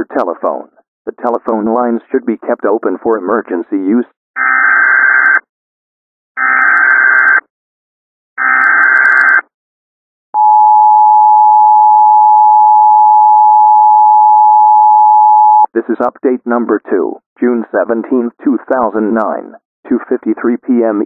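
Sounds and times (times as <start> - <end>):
two-tone attention signal: 10.4 - 15.7.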